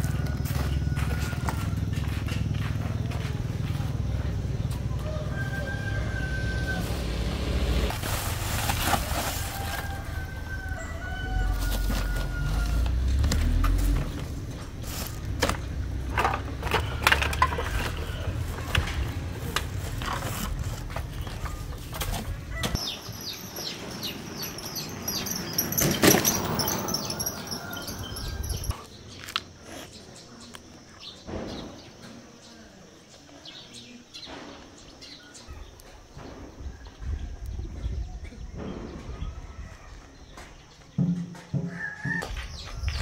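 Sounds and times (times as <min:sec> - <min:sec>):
small birds chirping: 0:22.5 - 0:41.1.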